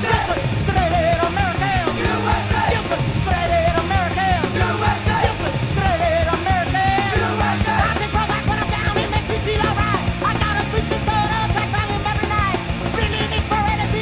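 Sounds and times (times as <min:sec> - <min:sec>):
punk rock band playing: 0:00.0 - 0:14.0
shouted vocals: 0:00.0 - 0:14.0.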